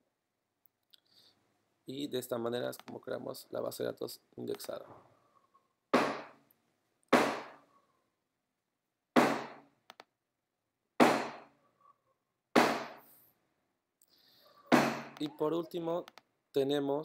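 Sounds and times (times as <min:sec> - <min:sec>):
heavy thumps: 0:06.0 - 0:06.4, 0:07.1 - 0:07.6, 0:09.2 - 0:09.6, 0:14.7 - 0:15.2.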